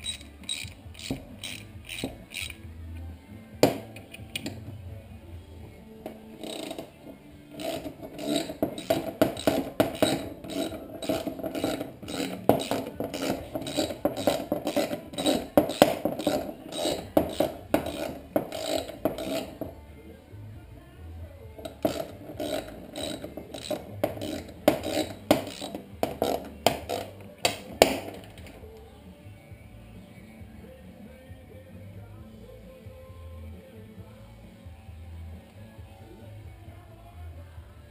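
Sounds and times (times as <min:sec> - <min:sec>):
ratchet wrench clicking: 0:00.0 - 0:02.6, 0:06.4 - 0:06.9, 0:07.5 - 0:19.7, 0:21.7 - 0:28.5.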